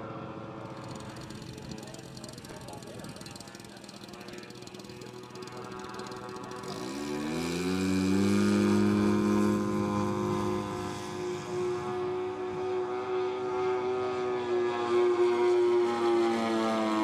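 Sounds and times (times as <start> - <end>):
model plane propeller engines droning: 0.0 - 17.0.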